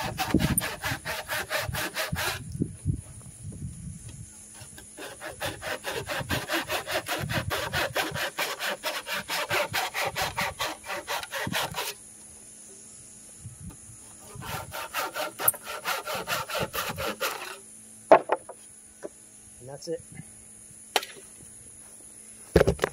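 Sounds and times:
hand saw cutting wood: 0.0 - 2.5, 4.5 - 12.0, 14.1 - 17.6.

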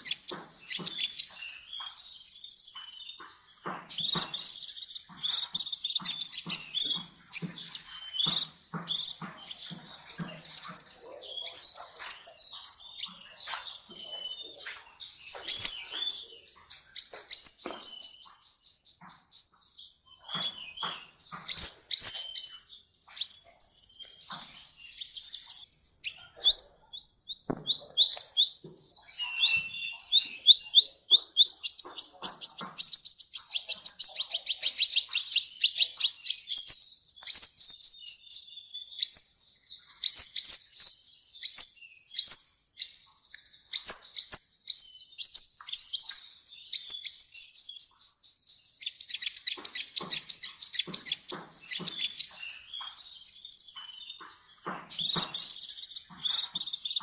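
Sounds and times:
sunbird singing rapid trills: 0.0 - 57.0.

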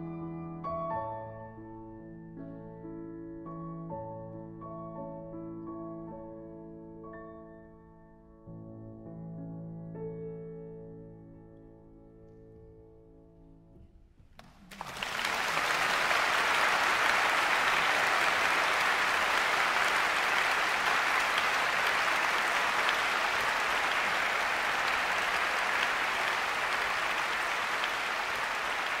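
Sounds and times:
audience applauding: 14.4 - 29.0.

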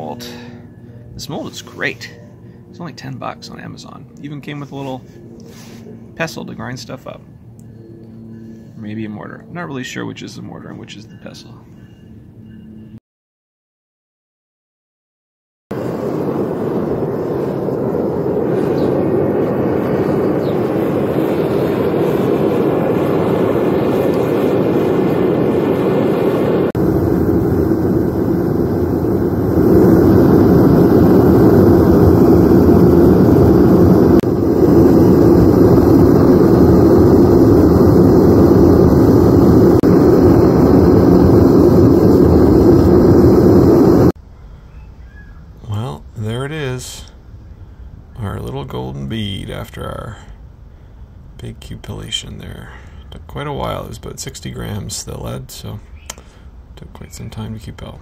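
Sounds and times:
kiln fire rushing: 15.7 - 44.2.

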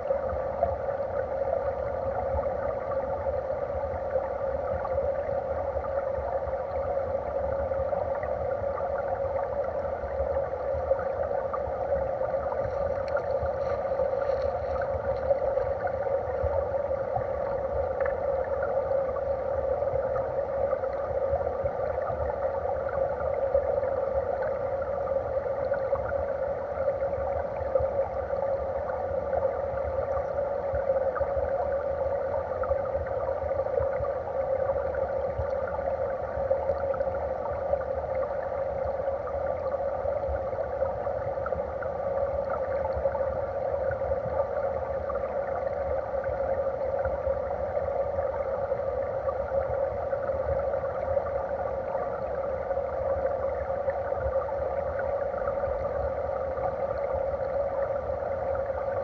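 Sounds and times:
underwater stream rushing: 0.0 - 59.0
bubbles crackling: 4.6 - 25.0.

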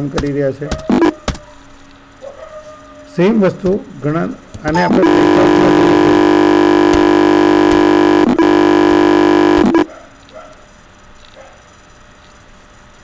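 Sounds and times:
loud electronic buzz: 0.9 - 1.2, 4.6 - 9.9.

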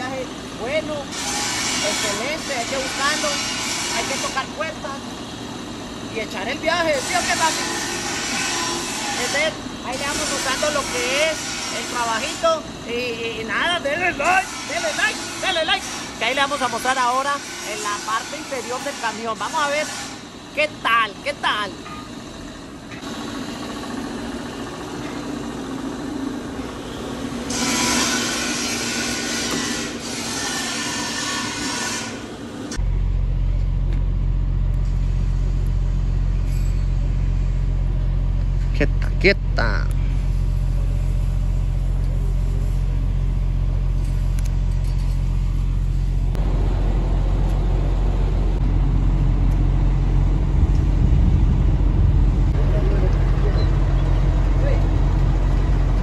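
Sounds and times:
truck engine idling: 22.1 - 27.5, 32.3 - 56.0.

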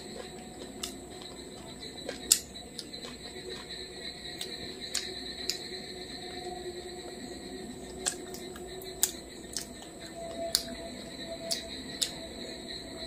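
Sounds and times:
high-pitched whine: 0.0 - 13.0
fingers mixing food on a plate: 7.8 - 10.7.

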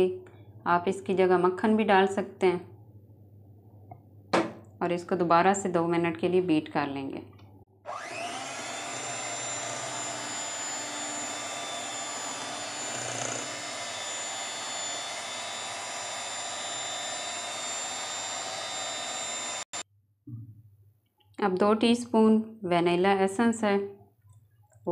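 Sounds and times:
electric hand mixer whining: 7.9 - 19.8.

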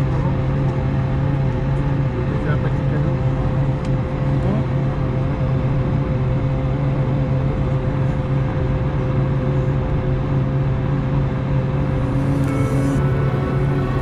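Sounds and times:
aircraft cabin drone: 0.0 - 14.0.

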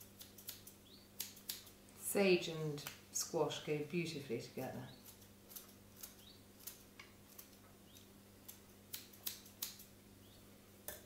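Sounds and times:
scissors snipping leaves: 0.1 - 1.7, 5.0 - 9.9.

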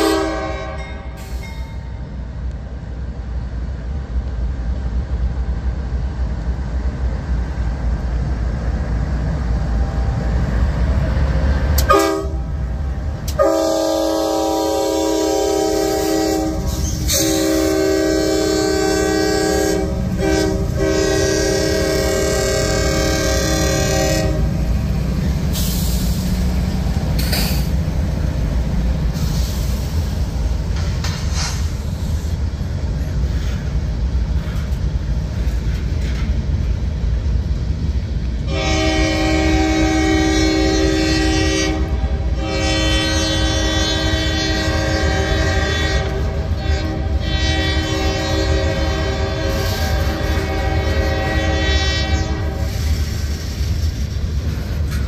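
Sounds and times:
locomotive air horn: 0.0 - 1.4, 11.8 - 12.7, 13.3 - 24.7, 38.4 - 54.0
train wheels rumbling on rail: 0.0 - 55.0.

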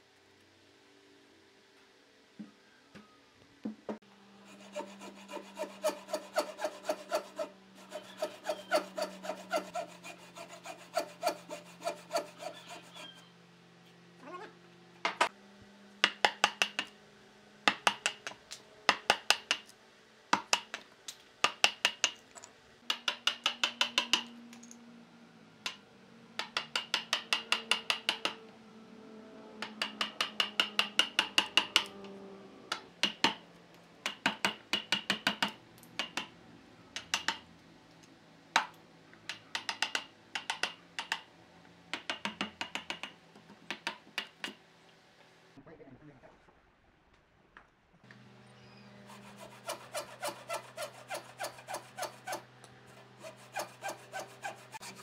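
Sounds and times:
wood splitting: 4.6 - 12.8, 49.1 - 55.0.

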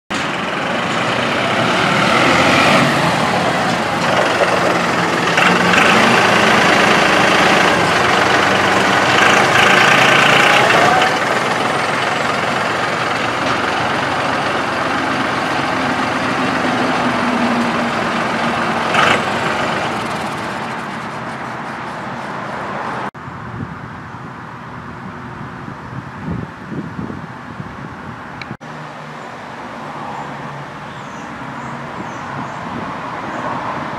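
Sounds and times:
tractor diesel engine running: 0.1 - 22.5.

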